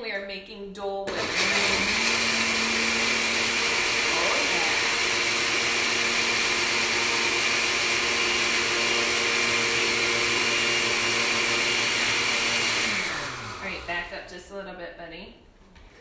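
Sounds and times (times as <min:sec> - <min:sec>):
blender running: 0:01.1 - 0:14.2.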